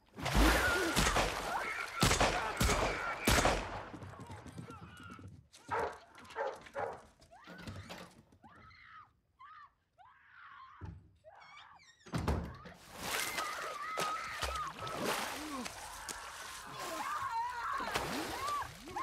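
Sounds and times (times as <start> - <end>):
water splashing: 0.0 - 3.8, 12.8 - 19.0.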